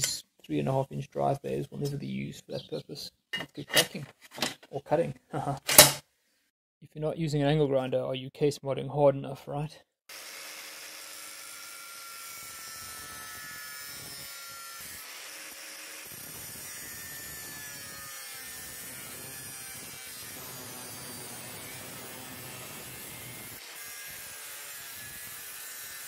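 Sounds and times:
angle grinder cutting metal: 10.1 - 26.0.

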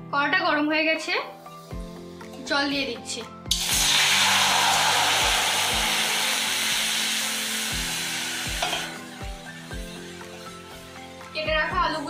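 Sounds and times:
water sizzling on hot metal: 3.5 - 10.9.

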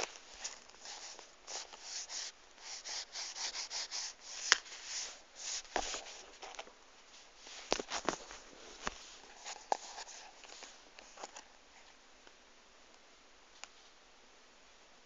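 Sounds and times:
rustling and rubbing: 0.0 - 11.4.

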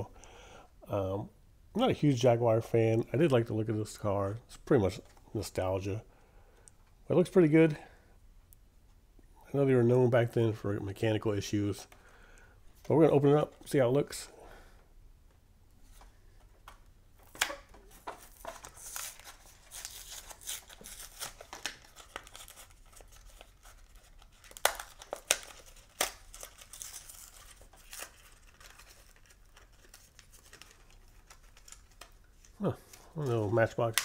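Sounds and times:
plastic blister ripping and snapping: 17.2 - 32.6
plastic crinkling: 17.2 - 34.0.

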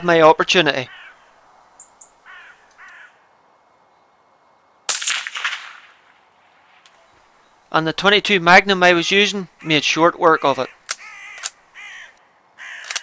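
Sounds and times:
crow cawing: 0.8 - 1.4, 2.2 - 3.3, 9.6 - 13.0
rifle shot with echo: 4.9 - 6.9.

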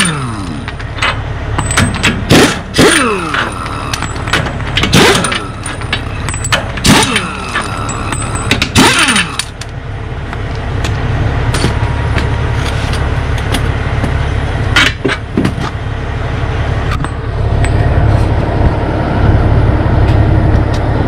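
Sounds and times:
low vehicle rumble: 0.0 - 21.0
metal clinks: 3.3 - 9.5.

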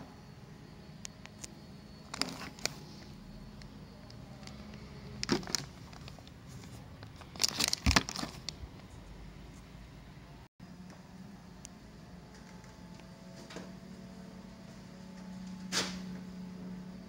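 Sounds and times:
plastic bags crinkling: 2.1 - 2.8, 4.4 - 8.6.

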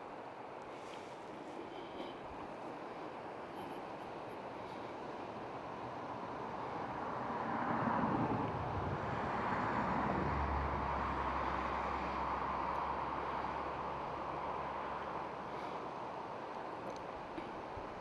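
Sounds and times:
low engine hum: 0.0 - 18.0
vehicle passing on highway: 3.6 - 16.5.

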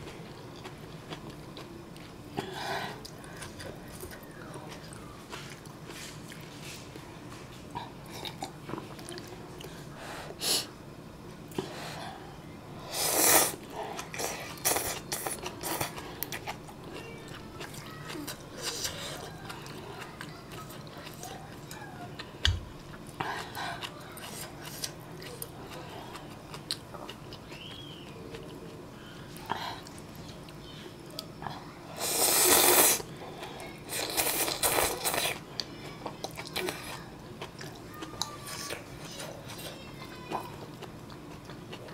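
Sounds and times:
chewing: 0.0 - 7.0, 7.7 - 9.8, 13.8 - 41.9
noodles being slurped: 32.0 - 33.1, 33.9 - 35.4.

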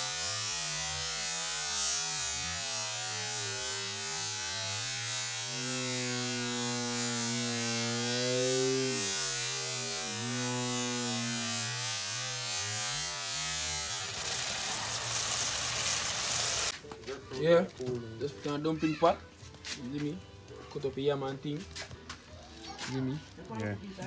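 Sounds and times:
low buzzing drone: 0.0 - 16.7.

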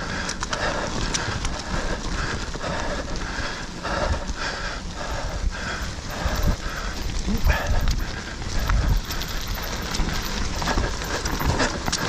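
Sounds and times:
bike clattering over bumps: 0.0 - 12.0
bike tyres rumbling on dirt: 0.0 - 12.0.

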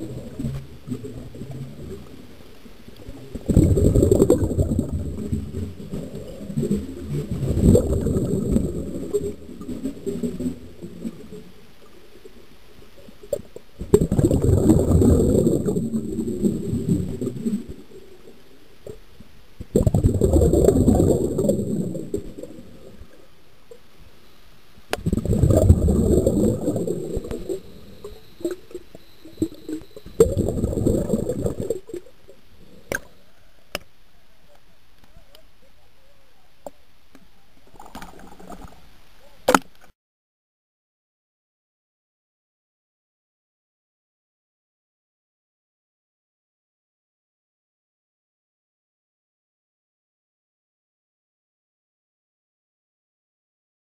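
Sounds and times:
underwater bubbles gurgling: 0.0 - 23.8, 24.9 - 33.8, 37.6 - 38.9.

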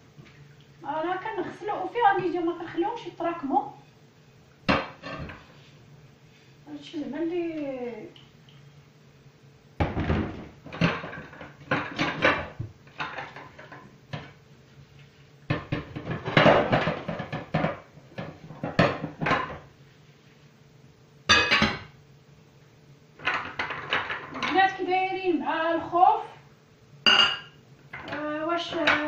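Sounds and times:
dishes clattering in sink: 9.8 - 14.4, 15.5 - 19.7, 21.3 - 22.0, 23.2 - 24.7, 27.1 - 29.0.

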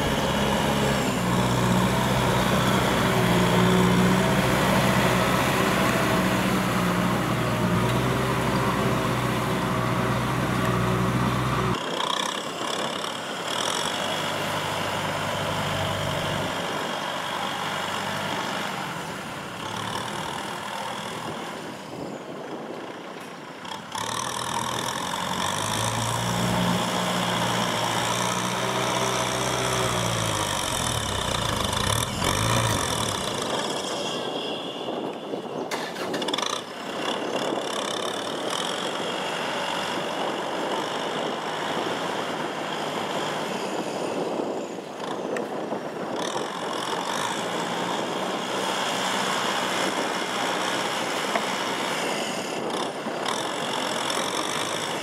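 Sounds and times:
tractor diesel engine under load: 0.0 - 55.0.

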